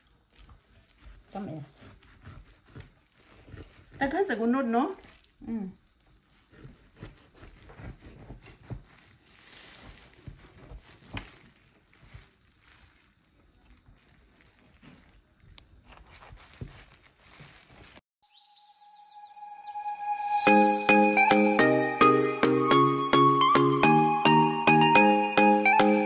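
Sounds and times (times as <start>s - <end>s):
music: 19.4s - 26.0s.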